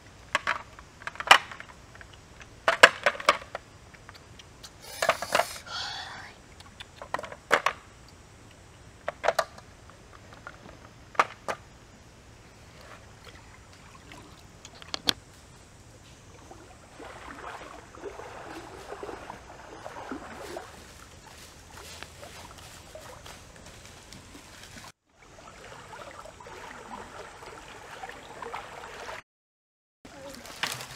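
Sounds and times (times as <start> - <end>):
footsteps through dry leaves: 20.3 - 24.9.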